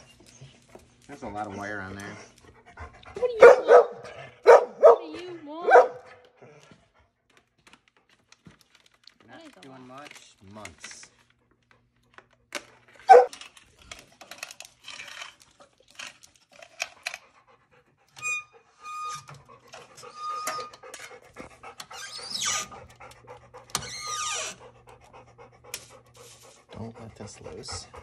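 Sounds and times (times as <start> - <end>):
plastic rustling: 7.5 - 12.2
short squeaks: 18.2 - 20.9, 21.9 - 22.8.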